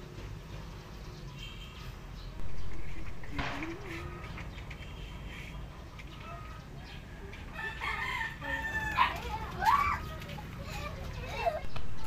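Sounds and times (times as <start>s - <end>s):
rooster crowing: 7.5s - 9.2s.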